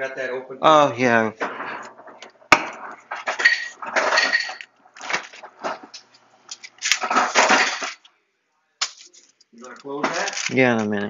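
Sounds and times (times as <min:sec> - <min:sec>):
dishes clattering: 0:01.4 - 0:08.0.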